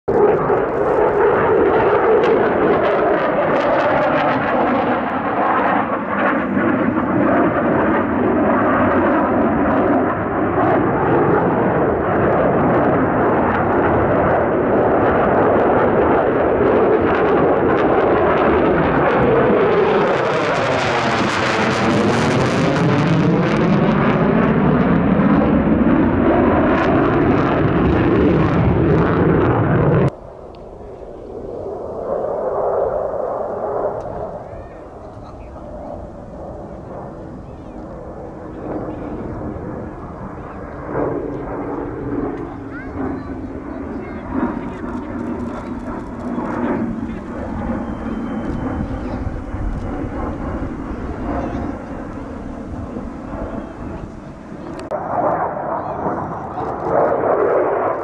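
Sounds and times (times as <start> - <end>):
jet engines roaring: 0.1 - 58.0.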